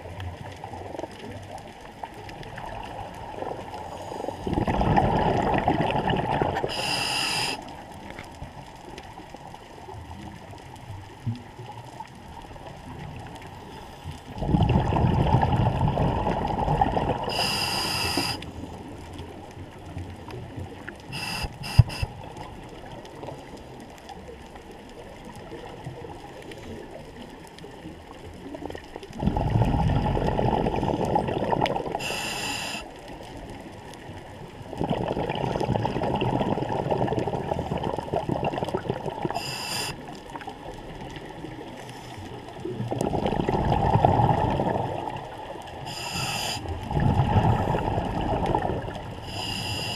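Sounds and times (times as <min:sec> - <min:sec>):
exhaled bubbles rumbling underwater: 0:00.0 - 0:49.9
regulator inhalation hiss: 0:06.7 - 0:07.7, 0:17.3 - 0:18.6, 0:21.1 - 0:22.2, 0:32.0 - 0:32.9, 0:39.3 - 0:40.0, 0:45.8 - 0:46.7, 0:49.2 - 0:49.9.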